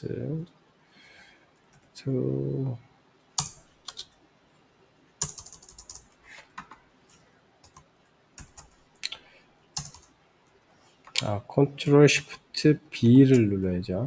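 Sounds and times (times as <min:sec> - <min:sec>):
computer keyboard typing: 0:03.4 - 0:04.1, 0:05.2 - 0:08.8, 0:09.8 - 0:10.2.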